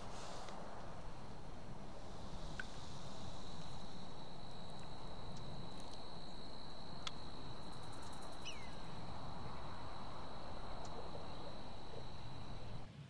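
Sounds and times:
outdoor background noise: 0:00.0 - 0:13.0
high-pitched insect trill: 0:02.3 - 0:12.9
faint ticks: 0:02.5 - 0:03.9, 0:04.5 - 0:08.5, 0:10.7 - 0:11.2.

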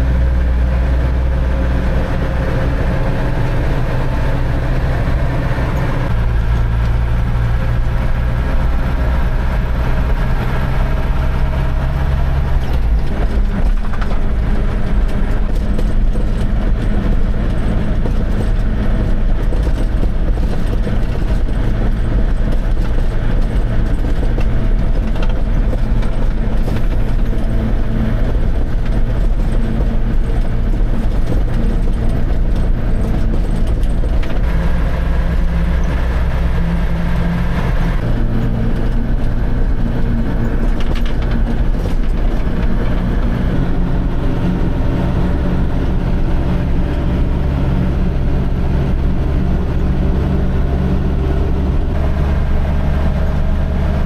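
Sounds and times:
truck diesel engine droning: 0:00.0 - 0:54.0.

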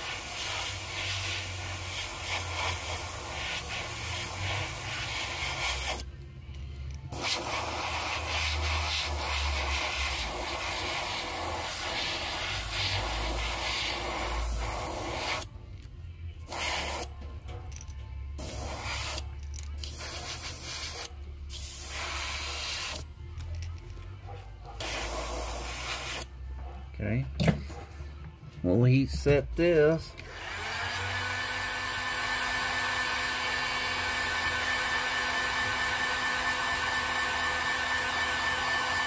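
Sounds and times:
airbrush spraying hiss: 0:00.0 - 0:06.1, 0:07.1 - 0:15.5, 0:16.5 - 0:17.1, 0:18.4 - 0:23.0, 0:24.8 - 0:26.3.

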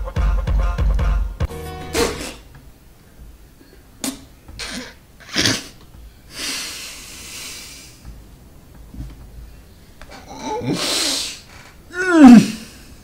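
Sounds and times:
long hissing exhale: 0:06.3 - 0:08.0, 0:10.7 - 0:11.5.

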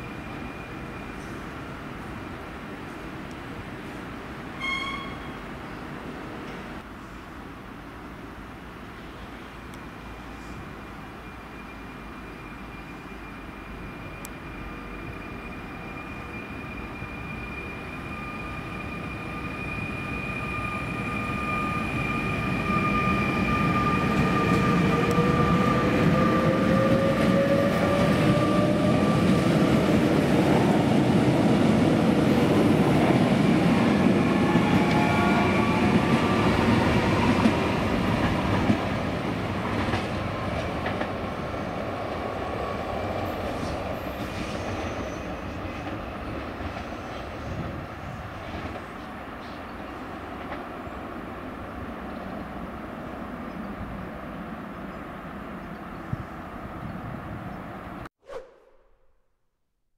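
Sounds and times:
train wheels rumbling on rails: 0:11.6 - 0:51.0.

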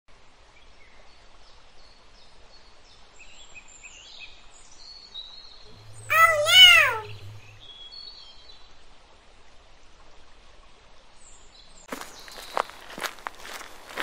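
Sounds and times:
two-note animal call: 0:05.7 - 0:07.6
low hum: 0:05.7 - 0:07.8
small birds chirping: 0:11.8 - 0:14.0.

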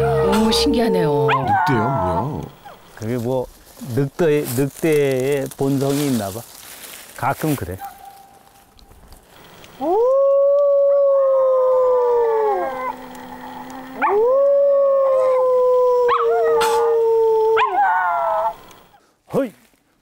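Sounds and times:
man howling: 0:00.0 - 0:02.7, 0:09.8 - 0:18.7
dogs howling: 0:00.0 - 0:02.9, 0:09.7 - 0:18.9.

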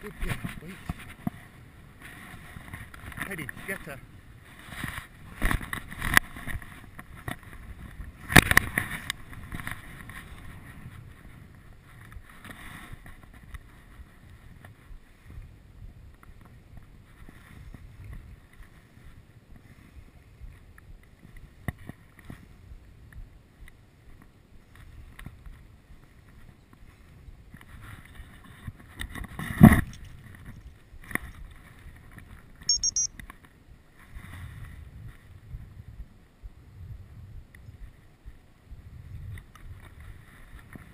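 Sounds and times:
wind on microphone: 0:00.0 - 0:32.7, 0:33.6 - 0:40.9
brief high chirp: 0:32.7 - 0:33.1.

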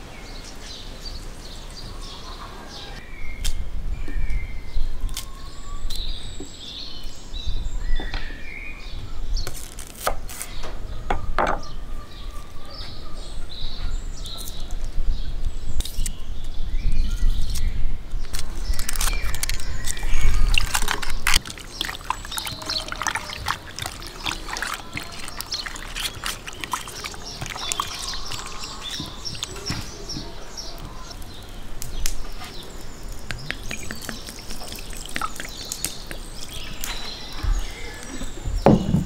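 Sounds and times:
wet squelching of meat by hand: 0:18.3 - 0:30.1, 0:33.1 - 0:36.9.

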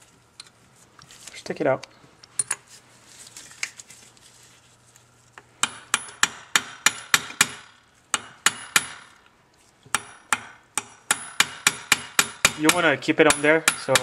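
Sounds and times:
hammer striking steel: 0:05.6 - 0:09.2, 0:09.9 - 0:14.0.

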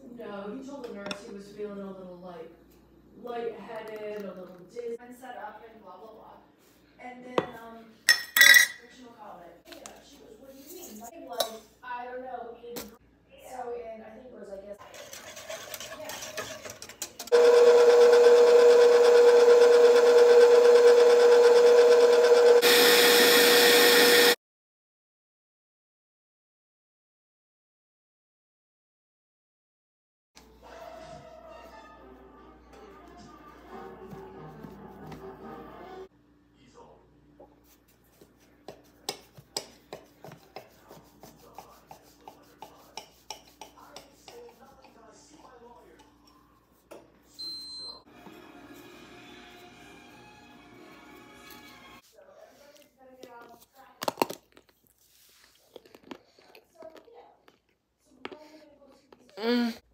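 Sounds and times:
stand mixer motor whine: 0:17.3 - 0:24.4
knife chopping on stone countertop: 0:38.7 - 0:44.2.

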